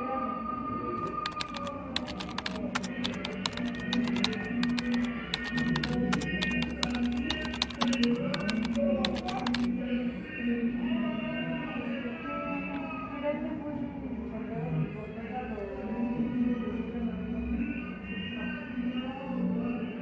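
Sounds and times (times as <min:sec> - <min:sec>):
keyboard typing clicks: 0:01.0 - 0:09.7.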